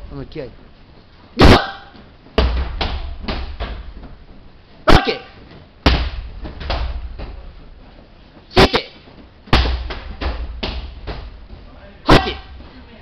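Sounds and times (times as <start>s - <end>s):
strikes smacking target boards: 5.8s - 7.0s, 9.5s - 11.4s
person shouting: 12.1s - 12.5s.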